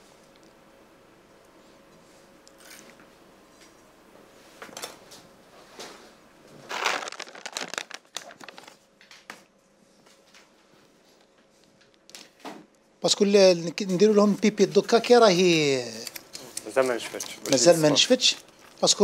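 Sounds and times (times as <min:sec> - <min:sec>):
short sharp crackles: 0:06.7 - 0:08.7
plastic packet crinkling: 0:06.7 - 0:08.8.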